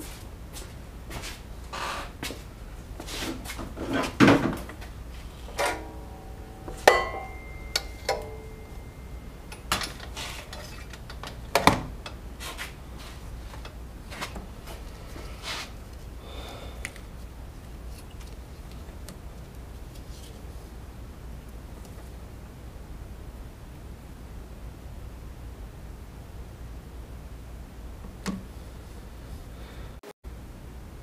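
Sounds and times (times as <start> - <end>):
tools knocking and clinking: 5.6 - 12.2.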